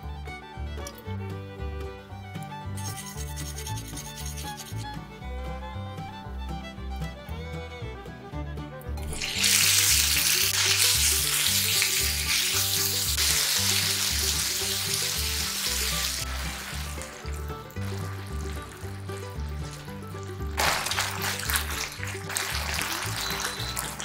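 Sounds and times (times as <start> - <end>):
background music with bass line: 0.0 - 24.0
meat sizzling in a frying pan: 9.1 - 24.0.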